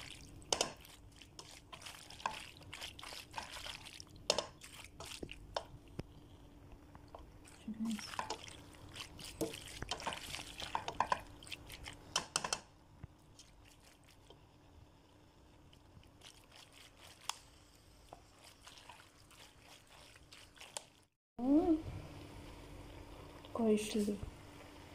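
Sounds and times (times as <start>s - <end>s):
pasta squelching while stirred: 0.0s - 21.2s
spatula scraping a pot: 8.0s - 12.0s.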